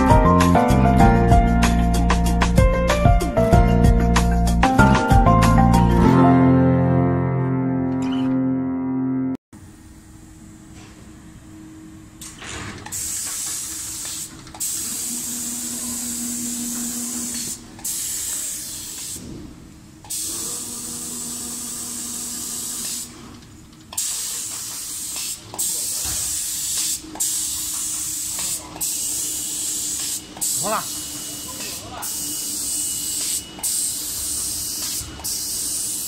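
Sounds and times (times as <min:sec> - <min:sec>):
spray guns hissing: 0:12.9 - 0:16.6, 0:17.2 - 0:19.2, 0:21.6 - 0:23.2, 0:24.0 - 0:36.0.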